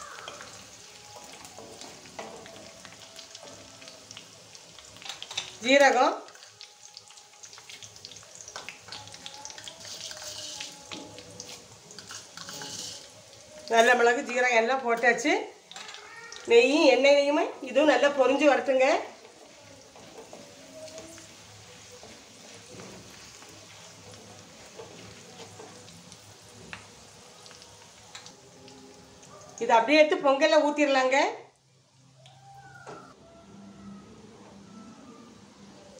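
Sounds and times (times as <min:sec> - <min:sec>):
spices sizzling in hot oil: 0:00.0 - 0:32.7
spatula stirring: 0:08.4 - 0:14.4, 0:17.8 - 0:26.5.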